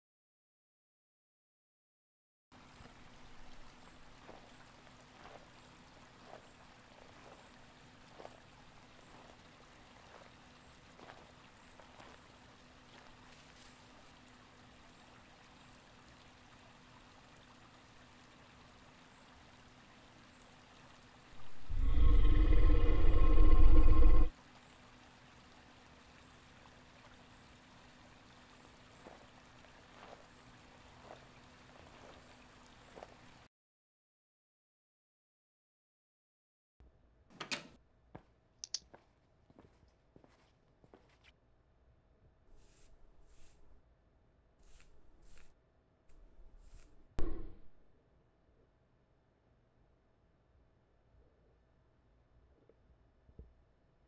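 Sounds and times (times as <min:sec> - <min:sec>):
low hiss and hum: 0:02.6 - 0:33.5
footsteps on concrete: 0:38.2 - 0:41.3.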